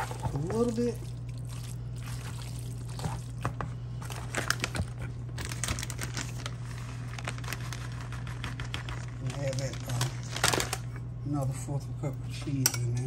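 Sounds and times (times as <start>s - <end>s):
utensil stirring wet mixture in bowl: 0.0s - 4.8s
steady low hum: 0.0s - 13.0s.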